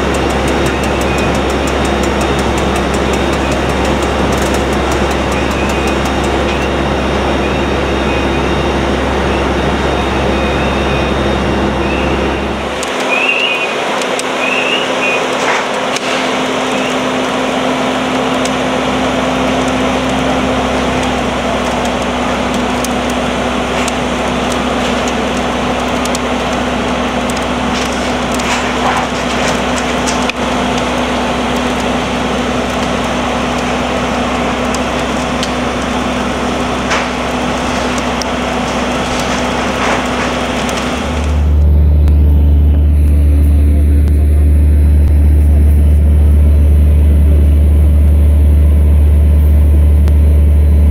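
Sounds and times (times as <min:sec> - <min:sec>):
burning wooden roof crackling: 0:00.0 - 0:50.9
deep rumble: 0:00.0 - 0:50.9
fire engine motors and pumps running: 0:00.0 - 0:50.9.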